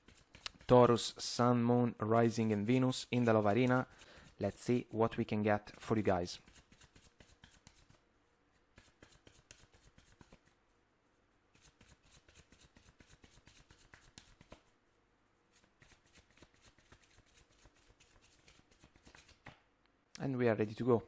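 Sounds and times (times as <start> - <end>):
cards being shuffled: 0.1 - 1.0, 5.7 - 8.0, 8.7 - 10.5, 11.6 - 14.7, 15.6 - 19.7.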